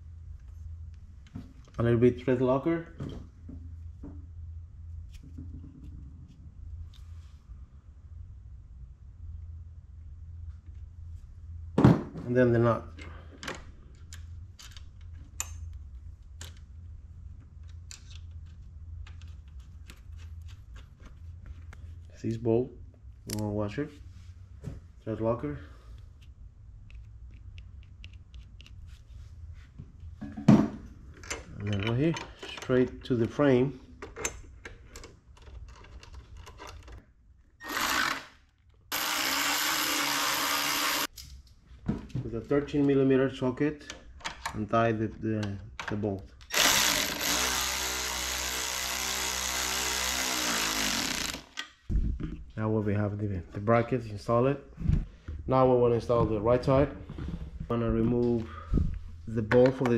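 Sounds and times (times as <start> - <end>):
cordless power tool spinning: 37.6 - 41.1, 46.5 - 51.6.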